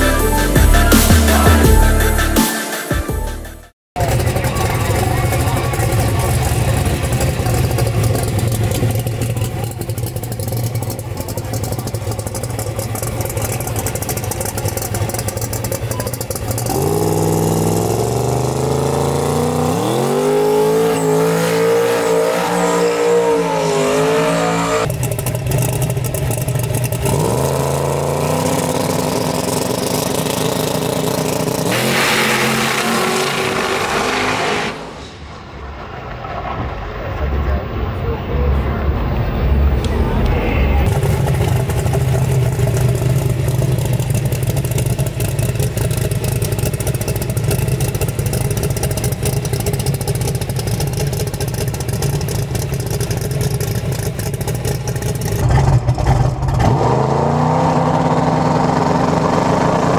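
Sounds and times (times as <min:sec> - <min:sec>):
race engine revving: 0:04.0 - 0:35.1, 0:35.9 - 0:59.9.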